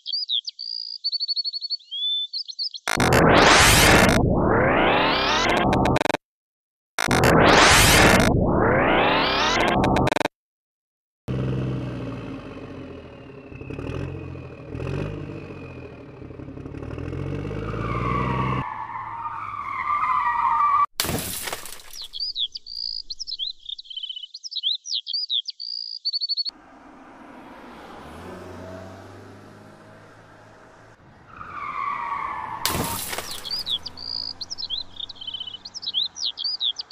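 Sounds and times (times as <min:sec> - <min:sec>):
loud splash: 0:21.0 - 0:22.3
high chirping squeaks: 0:21.7 - 0:26.5, 0:31.6 - 0:36.9.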